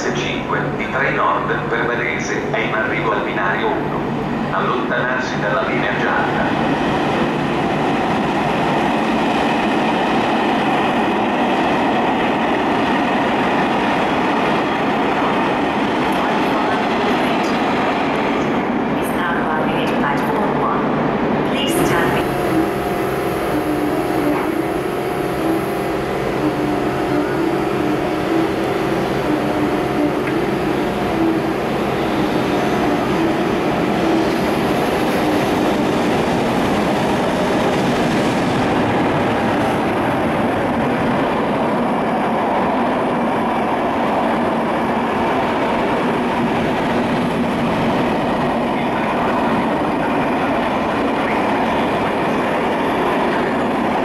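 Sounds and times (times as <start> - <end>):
train rumble: 0.0 - 54.0
locomotive steady tone: 21.5 - 54.0.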